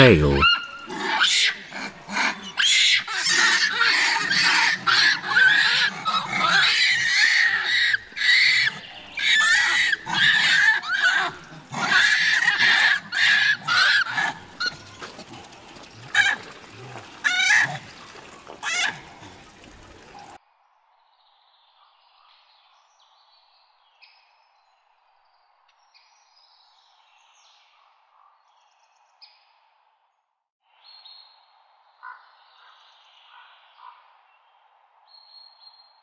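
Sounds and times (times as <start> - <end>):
animal squealing: 0.3 - 20.4.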